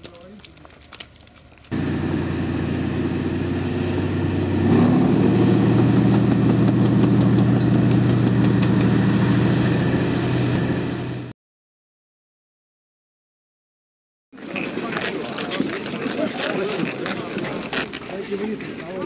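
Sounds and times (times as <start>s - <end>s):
tank engine revving: 1.7s - 11.3s.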